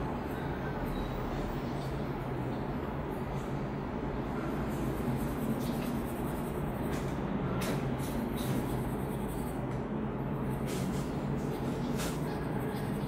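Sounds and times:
background hum and hiss: 0.0s - 13.0s
pencil scratching on paper: 4.4s - 13.0s.

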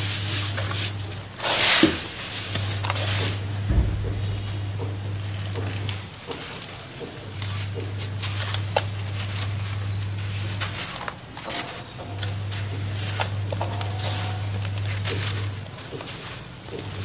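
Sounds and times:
powder crumbling and rustling: 0.0s - 17.0s
low steady hum: 3.4s - 6.0s.

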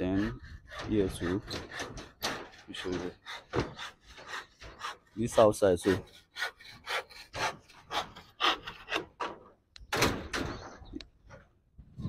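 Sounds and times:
rhythmic rasping scrapes: 0.0s - 9.2s.

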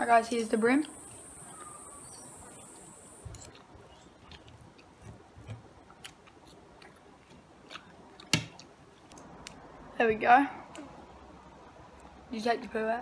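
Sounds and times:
soft chewing: 0.8s - 9.8s, 10.6s - 12.3s.

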